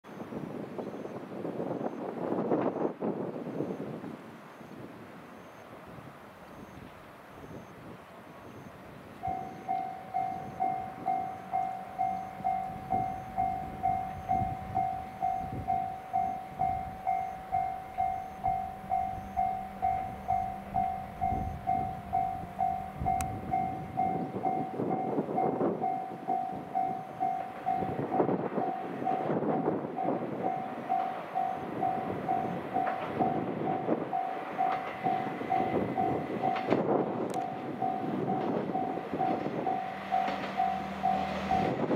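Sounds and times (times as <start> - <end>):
diesel railcar approaching: 0.1 - 41.9
level crossing bell ringing: 9.2 - 41.9.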